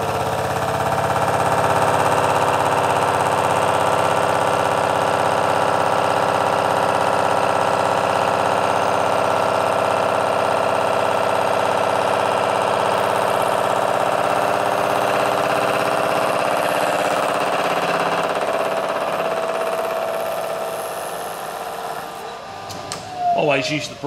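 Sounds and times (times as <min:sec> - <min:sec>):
face mill cutting steel: 0:00.0 - 0:24.0
spindle hum: 0:19.4 - 0:24.0.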